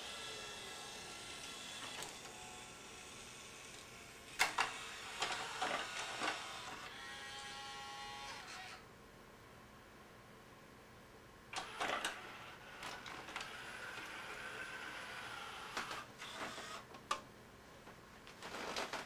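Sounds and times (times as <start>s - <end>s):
small motor whining: 0.0s - 8.8s, 11.6s - 16.9s
mechanism clicks and clunks: 3.7s - 6.8s, 11.5s - 14.3s.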